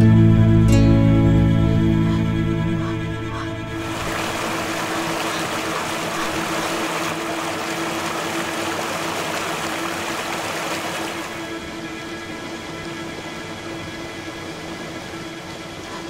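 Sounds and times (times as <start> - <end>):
constant hum: 0.0 - 16.0
steady rushing noise: 3.8 - 16.0.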